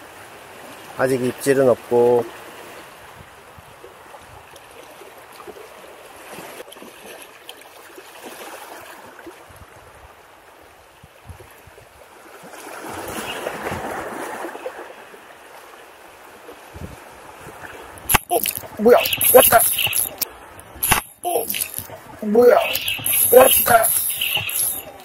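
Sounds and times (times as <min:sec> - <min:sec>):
waves lapping against rocks: 0:02.3 - 0:09.7, 0:11.4 - 0:18.9.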